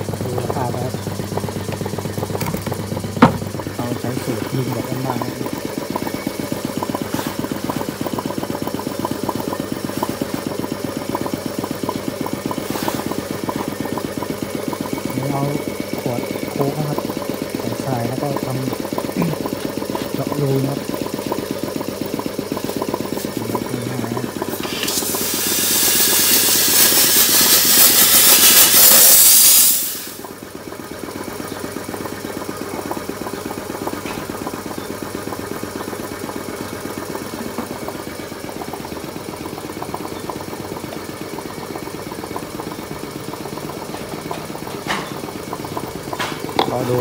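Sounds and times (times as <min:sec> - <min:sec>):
air compressor running: 0:00.0 - 0:47.0
sandblaster air hiss: 0:24.6 - 0:30.2.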